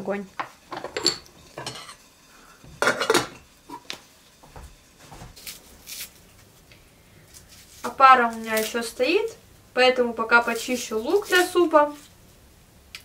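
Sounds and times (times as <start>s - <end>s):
pots and utensils clattering: 0.4s - 3.9s
knife scraping onion: 5.4s - 6.4s, 10.4s - 12.1s.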